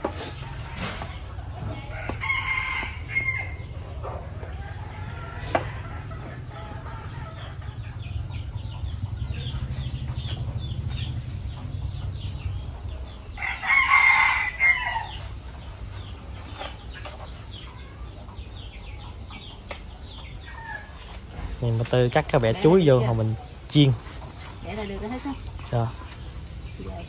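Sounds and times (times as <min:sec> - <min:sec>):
rooster crowing: 0:00.4 - 0:07.8, 0:13.4 - 0:15.3.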